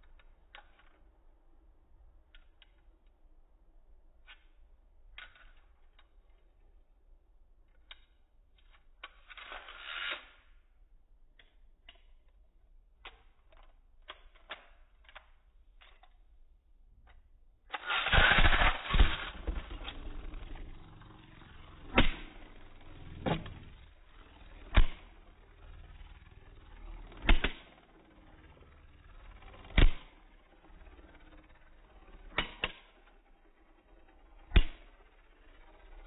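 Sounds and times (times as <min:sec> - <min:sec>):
spinning top clicking and scraping: 0:00.0 - 0:01.3, 0:04.1 - 0:06.7, 0:07.7 - 0:10.8, 0:11.4 - 0:16.4, 0:17.0 - 0:36.0
spinning top rattle: 0:08.6 - 0:10.6, 0:17.7 - 0:36.0
loud plastic clatter: 0:17.8 - 0:20.7.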